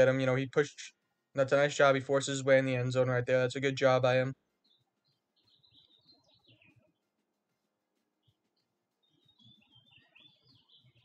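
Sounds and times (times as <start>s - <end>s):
faint high bird chirps: 3.9s - 11.0s.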